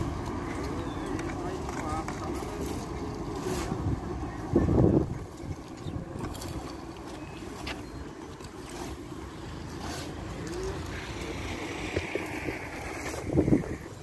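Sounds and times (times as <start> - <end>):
shovel and rake scraping asphalt: 0.0 - 14.0
street traffic rumble: 0.0 - 14.0
wind on microphone: 3.7 - 6.7, 10.9 - 14.0.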